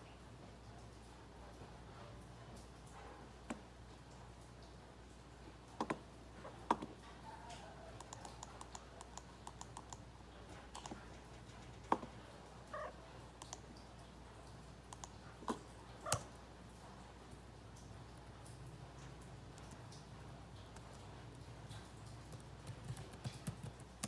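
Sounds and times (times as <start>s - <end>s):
mouse and keyboard clicks: 8.0s - 10.0s, 10.8s - 11.0s.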